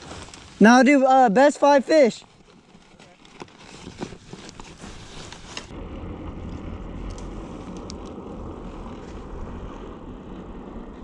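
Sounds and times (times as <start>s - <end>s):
wind buffeting microphone: 4.8s - 11.0s.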